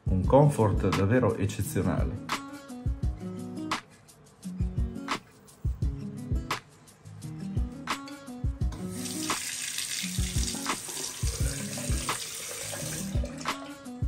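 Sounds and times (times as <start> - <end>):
music with drum beat and bass: 0.0 - 14.0
tap water running into sink: 8.8 - 13.7.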